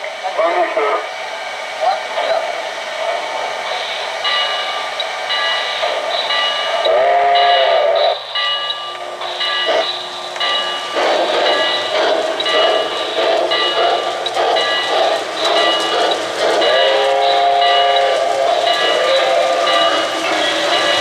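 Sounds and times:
model train rolling on track: 0.0 - 21.0
steam chuffs: 0.0 - 21.0
steam locomotive whistle: 6.8 - 8.2, 16.5 - 21.0.

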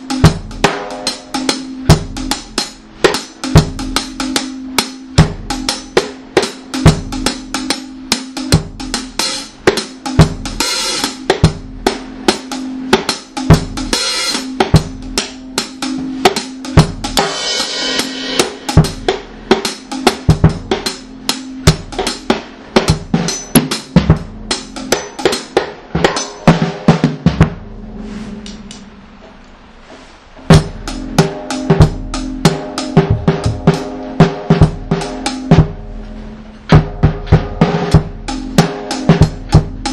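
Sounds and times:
drum kit playing: 0.0 - 39.9
steady held low note: 25.8 - 38.6.

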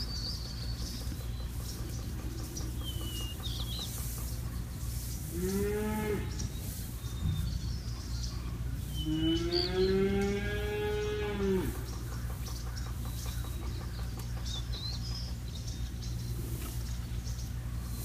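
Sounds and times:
cow mooing: 5.3 - 6.4, 9.0 - 11.9.

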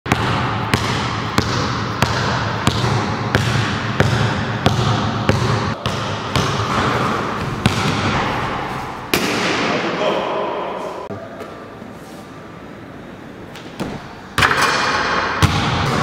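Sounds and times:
basketball bouncing in a hall: 0.1 - 11.8, 13.5 - 16.0.

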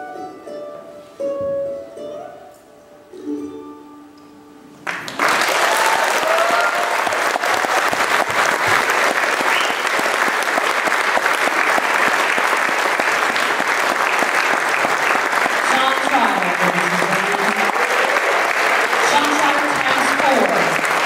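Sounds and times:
audience applauding: 4.8 - 21.0.

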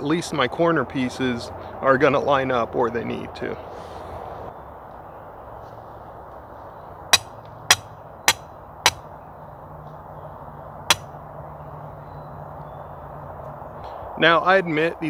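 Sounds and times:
hammer striking steel pin: 7.2 - 9.0.

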